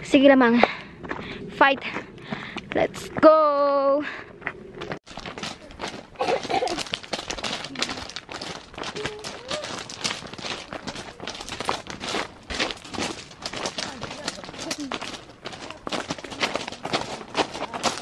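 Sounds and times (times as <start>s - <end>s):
footsteps crunching on gravel: 4.4s - 18.0s.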